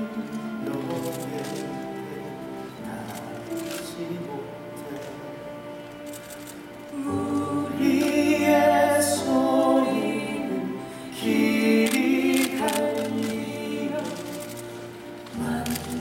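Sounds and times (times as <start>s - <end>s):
musical theatre singing: 0.0s - 16.0s
soft instrumental accompaniment: 0.0s - 16.0s.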